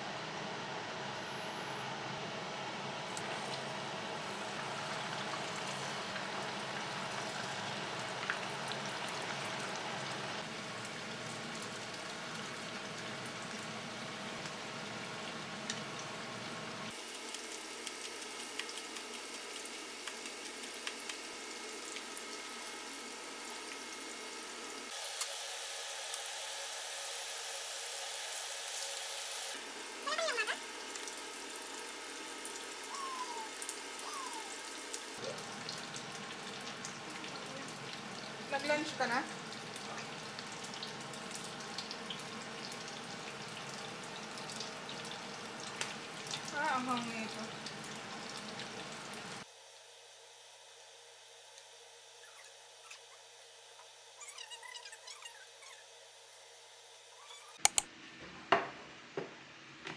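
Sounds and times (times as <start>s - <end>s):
quiet kitchen sounds: 0.0s - 59.9s
tofu sizzling in oil: 4.2s - 54.2s.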